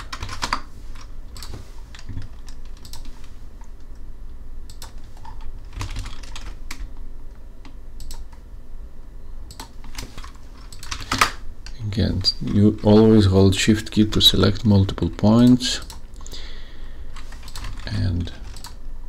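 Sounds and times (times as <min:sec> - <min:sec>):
computer mouse and keyboard clicking: 0:00.0 - 0:03.9, 0:04.7 - 0:06.9, 0:07.6 - 0:08.4, 0:09.5 - 0:11.4, 0:17.2 - 0:18.8
low steady hum: 0:00.0 - 0:19.0.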